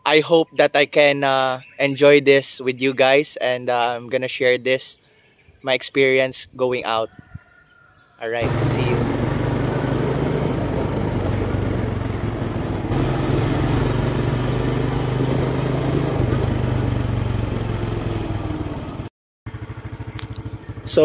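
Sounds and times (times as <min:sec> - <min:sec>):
motorcycle engine running: 0:08.4 - 0:21.0
wind noise rushing: 0:09.1 - 0:16.9.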